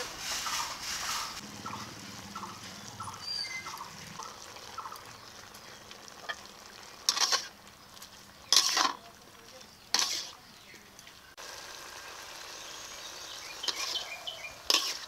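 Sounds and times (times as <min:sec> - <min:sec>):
faint simmer: 0:00.0 - 0:15.0
wooden spatula stirring in pot: 0:05.4 - 0:10.4
loud spatula scraping: 0:07.1 - 0:07.5, 0:08.5 - 0:09.0, 0:09.9 - 0:10.4, 0:13.7 - 0:15.0.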